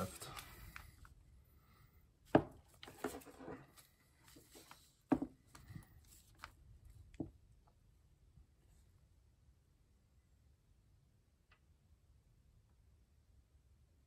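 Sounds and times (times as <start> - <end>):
paper rustling: 2.7 - 7.1.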